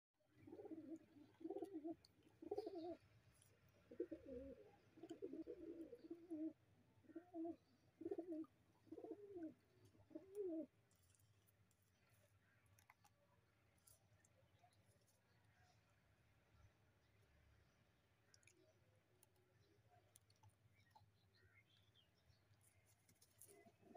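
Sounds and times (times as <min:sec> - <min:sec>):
pigeons cooing: 0:00.3 - 0:03.0, 0:03.8 - 0:10.7, 0:23.4 - 0:23.9.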